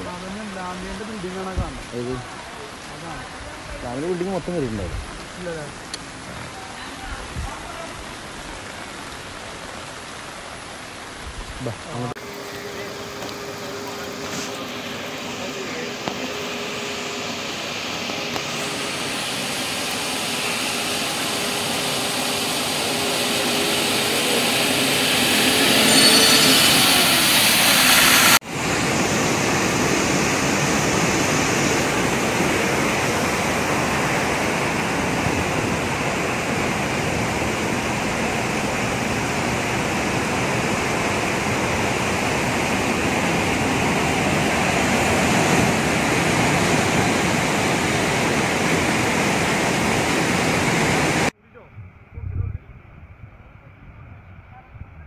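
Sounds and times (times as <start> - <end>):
floodwater rushing: 0.0 - 51.4
steady hum bending in pitch: 12.4 - 28.4.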